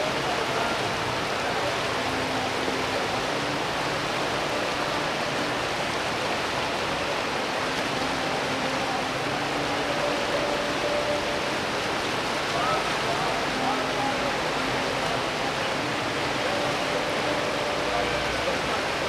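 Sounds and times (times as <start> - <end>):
steady rushing noise: 0.0 - 19.0.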